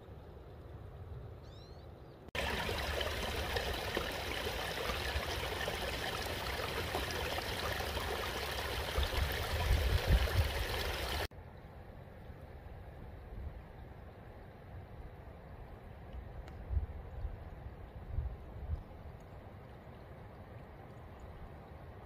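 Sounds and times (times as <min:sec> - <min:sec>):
rushing stream water: 0:02.4 - 0:11.3.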